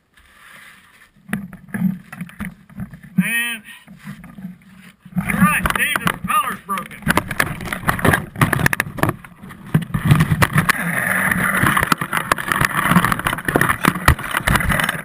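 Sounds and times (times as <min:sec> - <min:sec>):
rustling rush: 0:03.9 - 0:15.0.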